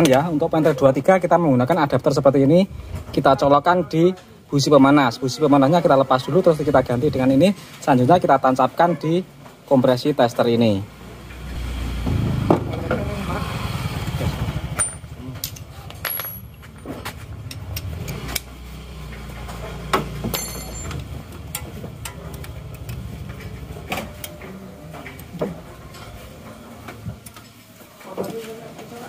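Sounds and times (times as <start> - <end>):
hand tools clinking on metal: 14.8 - 18.5, 19.4 - 25.2.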